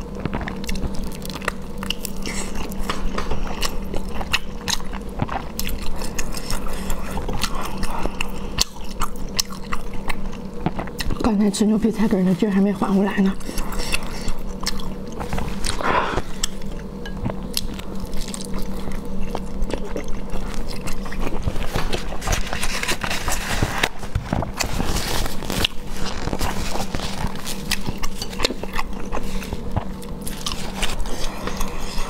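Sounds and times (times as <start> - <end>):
low steady hum: 0.0 - 32.0.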